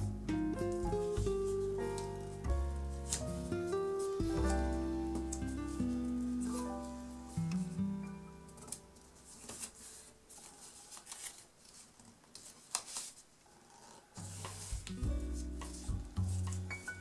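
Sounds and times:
background music: 0.0s - 9.4s, 14.2s - 17.0s
paper rustling and crackling: 0.7s - 7.8s, 8.4s - 17.0s.

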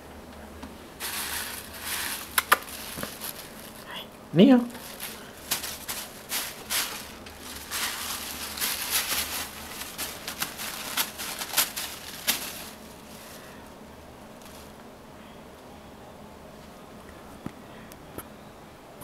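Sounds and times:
cat shredding paper: 1.0s - 3.9s, 4.7s - 13.7s.

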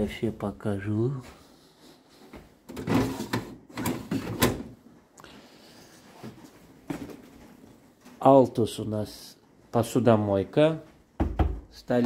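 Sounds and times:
fridge doors and drawers shutting: 2.7s - 4.8s.

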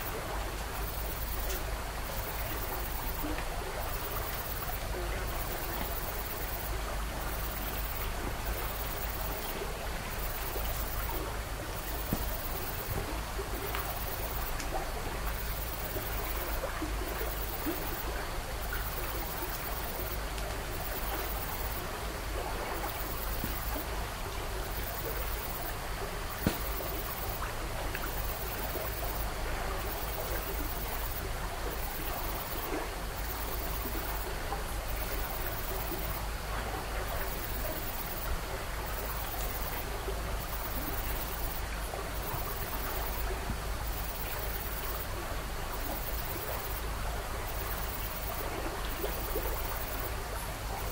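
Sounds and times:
steady rushing hiss: 0.0s - 36.6s.

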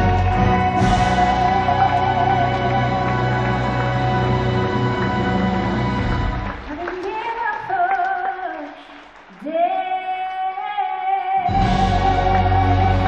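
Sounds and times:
woman singing with vibrato: 0.0s - 4.6s, 6.7s - 13.0s
symphony orchestra: 0.0s - 7.0s, 11.5s - 13.0s.

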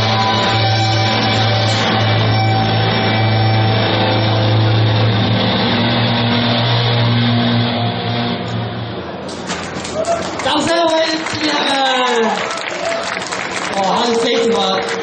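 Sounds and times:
distorted electric guitar chord: 0.0s - 9.2s
strings: 0.0s - 9.4s
bass guitar ringing: 0.0s - 9.8s, 13.8s - 15.0s.

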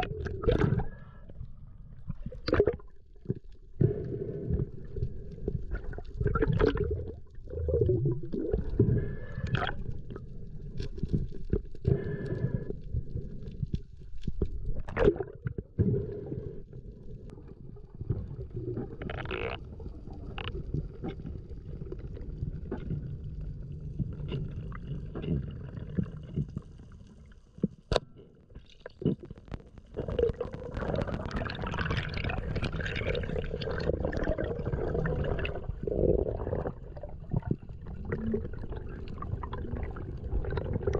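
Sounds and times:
rush of bubbly water: 0.0s - 1.0s, 2.0s - 13.4s, 14.3s - 15.7s, 28.7s - 40.9s
underwater rumbling and gurgling: 0.0s - 40.9s.

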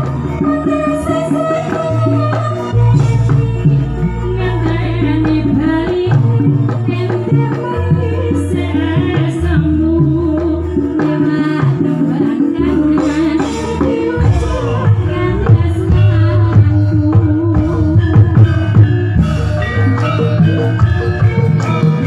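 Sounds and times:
woman singing through a pa: 0.0s - 19.4s
drum strokes: 0.0s - 22.0s
deep bass line: 13.9s - 22.0s.

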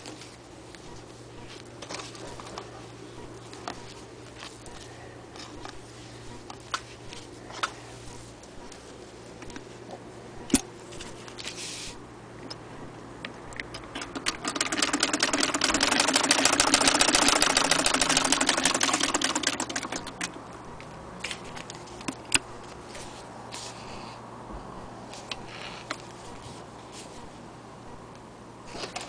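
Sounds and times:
sewing machine stitching: 13.9s - 20.3s.

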